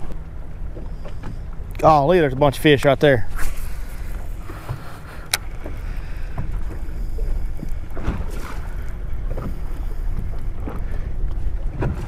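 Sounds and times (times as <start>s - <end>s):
low rumble of wind and water: 0.0s - 12.0s
sharp click: 5.2s - 5.5s.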